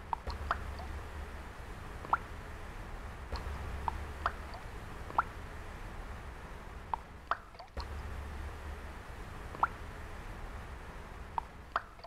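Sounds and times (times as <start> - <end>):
low steady hum: 0.0 - 12.0
water drops plopping: 0.1 - 1.0, 2.0 - 2.3, 3.3 - 5.3.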